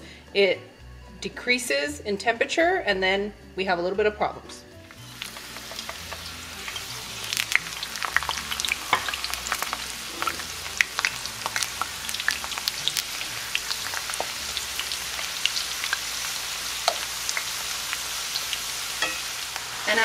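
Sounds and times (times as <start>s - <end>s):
potatoes frying in hot oil: 4.9s - 20.0s
utensil moving fries in skillet: 4.9s - 20.0s.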